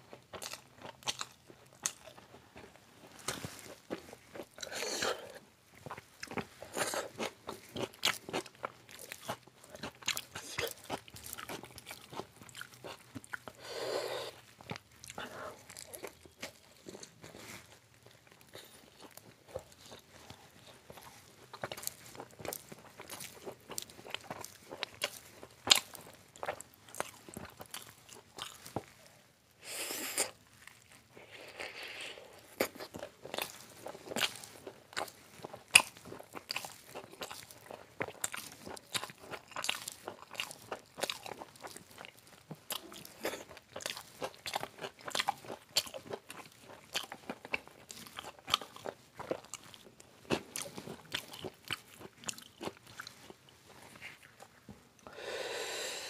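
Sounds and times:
wet chewing: 0.3 - 29.1, 30.1 - 55.1.

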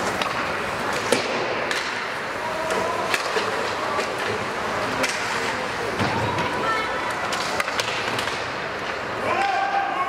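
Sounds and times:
hockey sticks clacking on puck: 0.0 - 9.9
background noise: 0.0 - 10.0.

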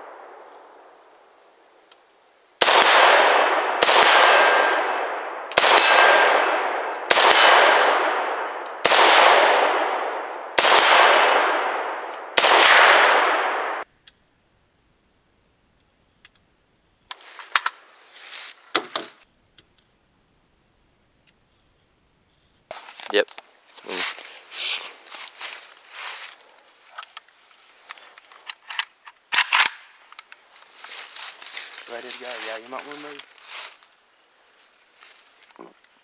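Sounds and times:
rifle shots with ringing tail: 2.6 - 13.8.

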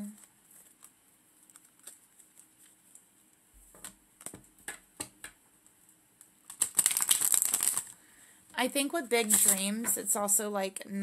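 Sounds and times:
cards tapping and clicking: 3.7 - 5.4.

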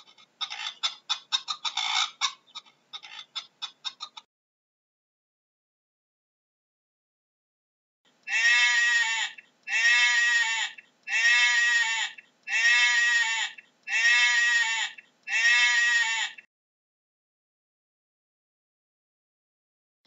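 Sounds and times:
sheep bleating: 8.3 - 16.5.

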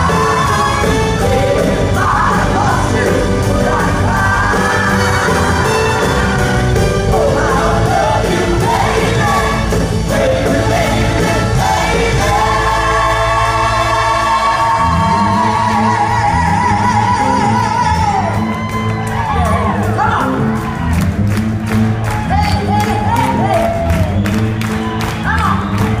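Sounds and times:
woman singing: 0.0 - 18.3
live band playing: 0.0 - 26.0.

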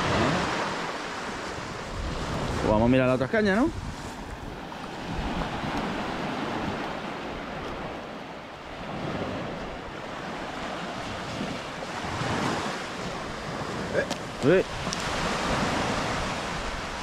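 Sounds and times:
small waves washing on shore: 0.0 - 17.0.

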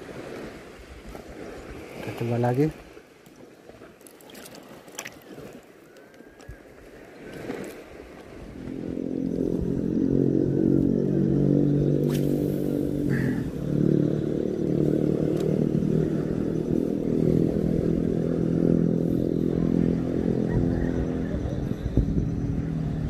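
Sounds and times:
motor engine running: 8.5 - 23.0.

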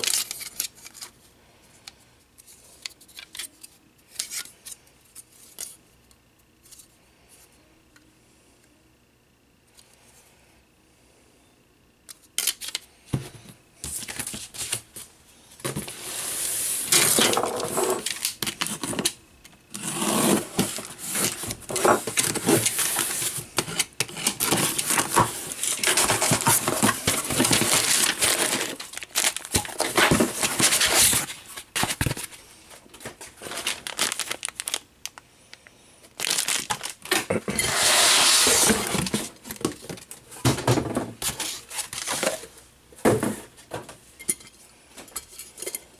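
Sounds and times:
packing wrap rustling: 24.1 - 32.4, 33.0 - 35.2, 36.1 - 39.6.

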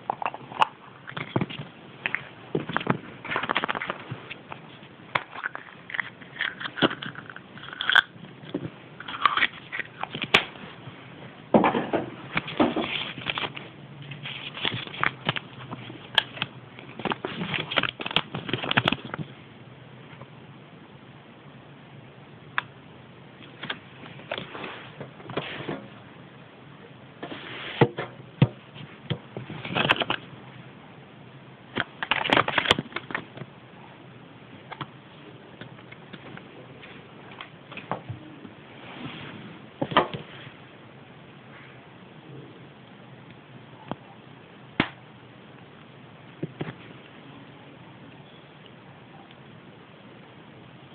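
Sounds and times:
paper crinkling: 0.2 - 10.7, 12.4 - 19.3.

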